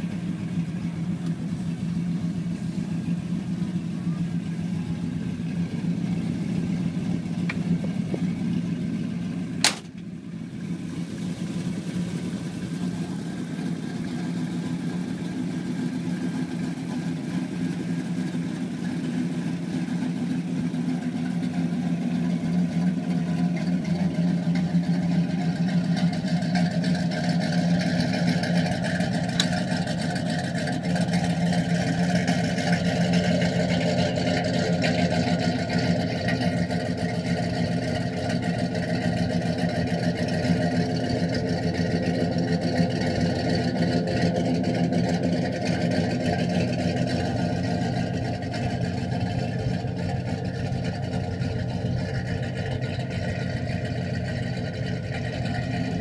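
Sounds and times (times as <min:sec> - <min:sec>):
car engine idling: 0:00.0 - 0:56.0
sharp knock: 0:09.6 - 0:10.0.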